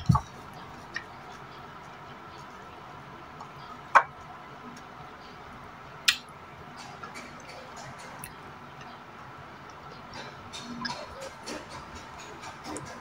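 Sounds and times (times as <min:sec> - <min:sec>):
sharp eating clicks: 0:06.1 - 0:09.0, 0:09.6 - 0:13.0.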